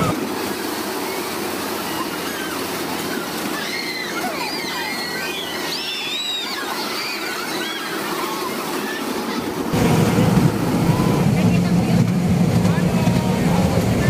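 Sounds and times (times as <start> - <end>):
high squealing glides: 0.0 - 11.6
ride car rumbling: 0.0 - 14.0.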